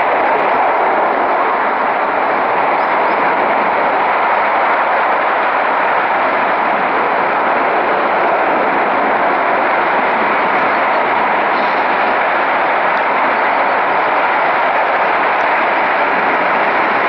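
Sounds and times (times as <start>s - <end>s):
gas jet flame roaring: 0.0s - 17.0s.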